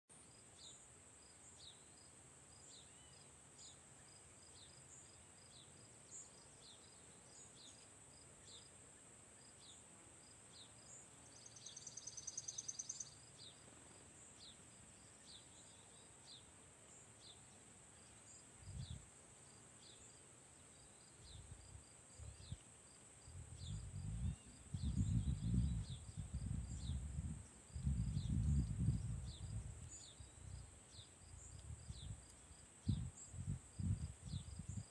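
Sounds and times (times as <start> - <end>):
insects droning: 0.2 - 34.9
bird chirps: 10.6 - 13.6
bird trill: 11.4 - 13.2
wind buffeting microphone: 23.3 - 30.6, 32.8 - 34.9.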